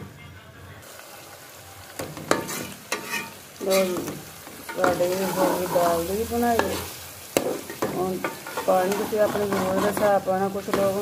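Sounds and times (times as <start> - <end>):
food sizzling: 0.8 - 11.0
ladle clinking and scraping pot: 2.2 - 4.0, 6.6 - 10.2.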